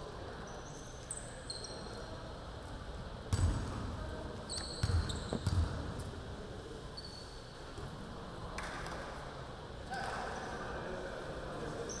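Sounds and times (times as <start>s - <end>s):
sneaker squeaks: 0.4s - 2.1s, 4.4s - 5.8s, 7.0s - 7.6s
basketball bouncing on hardwood floor: 4.8s - 5.8s.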